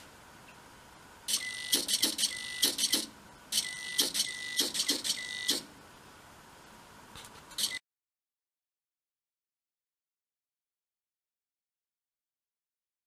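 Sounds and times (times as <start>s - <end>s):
servo whirring click: 1.3s - 5.7s
radio beep: 3.6s - 5.6s.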